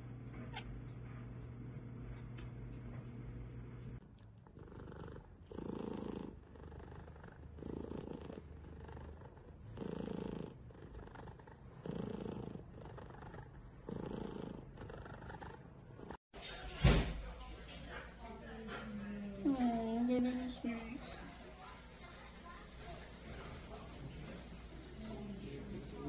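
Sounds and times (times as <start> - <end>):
cat purring: 3.9 - 16.2.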